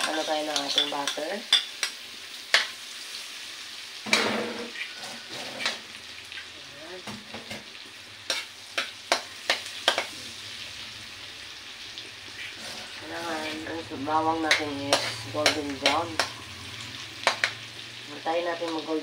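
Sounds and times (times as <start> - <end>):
garlic sizzling in butter: 0.0 - 19.0
utensil scraping and clicking on pan: 4.1 - 5.8, 14.5 - 16.3, 17.2 - 17.6.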